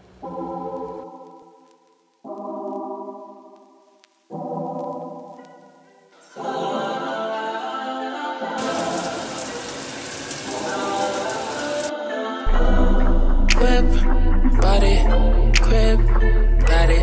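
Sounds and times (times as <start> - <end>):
soft music of sustained chords: 0.0 - 17.0
shower head spraying water: 8.6 - 11.9
music with heavy bass: 12.5 - 17.0.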